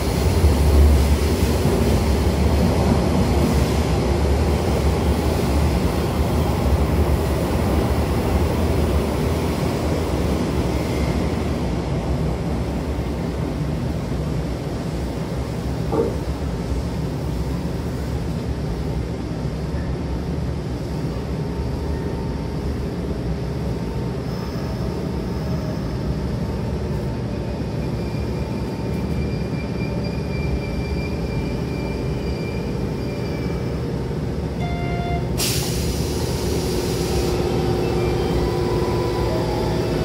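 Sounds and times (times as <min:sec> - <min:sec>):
train running rumble: 0:00.0 - 0:40.0
compressed air hiss: 0:35.4 - 0:37.5.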